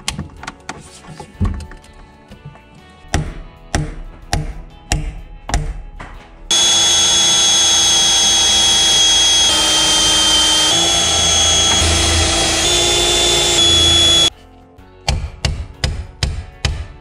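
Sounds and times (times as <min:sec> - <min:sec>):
cordless drill whining: 0:06.5 - 0:14.3.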